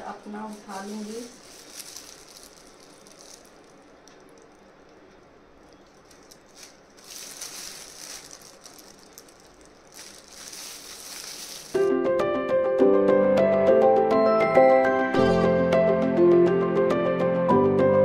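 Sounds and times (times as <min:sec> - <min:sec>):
brush rustling through hair: 0:00.0 - 0:04.4, 0:05.8 - 0:11.9
plastic gloves crinkling: 0:00.0 - 0:11.9
background music: 0:11.8 - 0:18.0.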